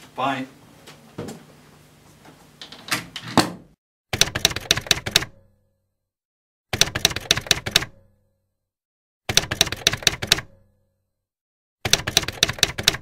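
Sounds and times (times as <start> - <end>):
typewriter keys clacking: 4.2 - 5.4, 6.8 - 8.0, 9.3 - 10.5, 11.9 - 13.0.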